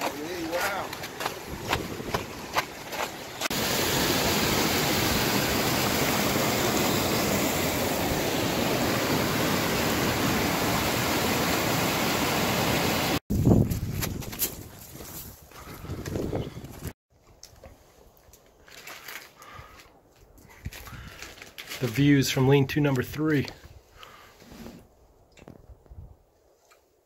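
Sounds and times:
footsteps on trail: 0.0 - 3.6, 13.3 - 21.9
stream rushing over rocks: 0.0 - 13.2.

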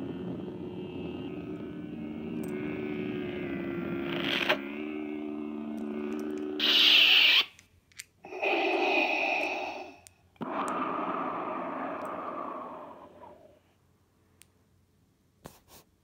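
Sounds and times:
lightsaber blade hum: 0.0 - 7.6, 8.2 - 13.7
electronic sound effects: 6.0 - 7.5
lightsaber powering down swoosh: 8.3 - 13.6.

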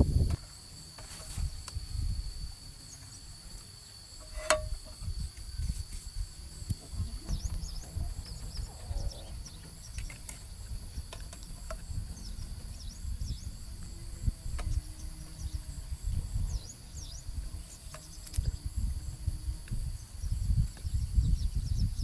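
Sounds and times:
insects droning: 0.0 - 22.0
low rumbling: 4.2 - 21.9.

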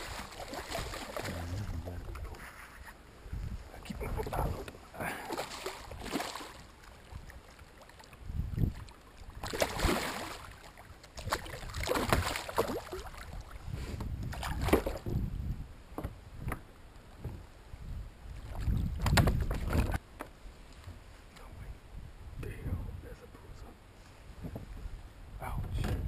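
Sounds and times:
fish splashing in water: 0.0 - 1.4, 5.2 - 13.6.

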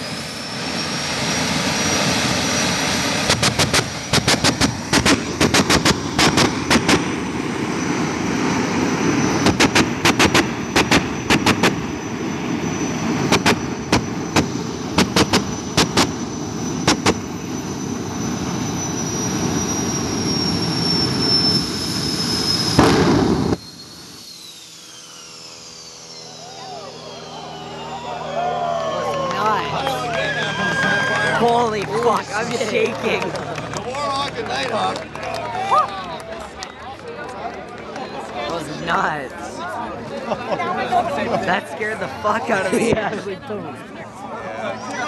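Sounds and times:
turbine engine high whine: 0.0 - 45.0
sharp bangs: 3.0 - 7.5, 9.3 - 12.0, 13.2 - 17.4, 22.7 - 23.6.

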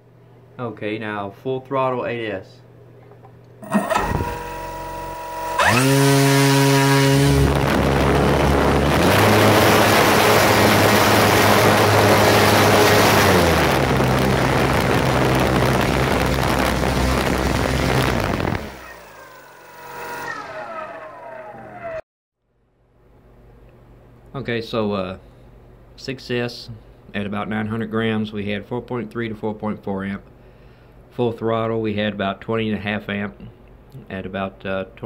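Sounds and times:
electric motor whining: 3.6 - 22.0
propeller wash rushing: 5.6 - 20.2.

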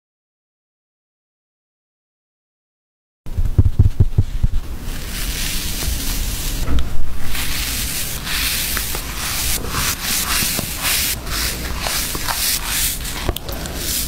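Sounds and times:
cotton candy rustling and crunching: 4.8 - 6.6, 7.2 - 14.0.

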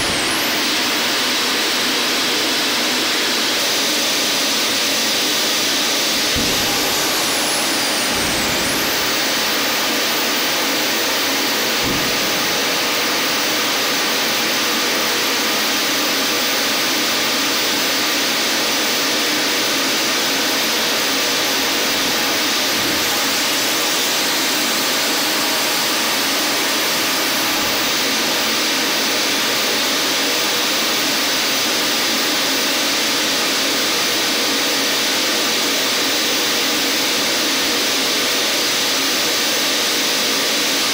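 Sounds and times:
hydraulic pumps rushing: 0.0 - 4.1, 5.0 - 14.5, 20.8 - 28.6
landing gear low thumps: 6.2 - 9.4.

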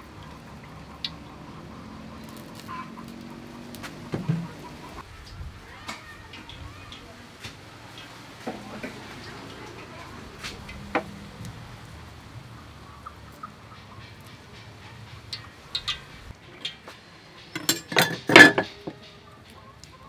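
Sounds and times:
sharp knocks and clatter: 17.4 - 19.0.

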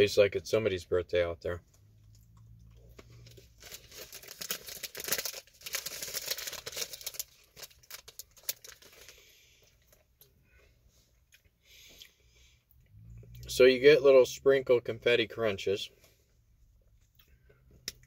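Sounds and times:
wrapper crinkling: 3.2 - 10.0.

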